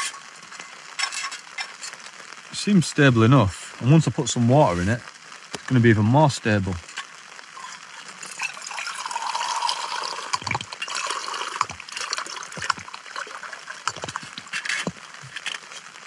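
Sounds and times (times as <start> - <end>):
water pouring into metal cup: 7.6 - 15.6.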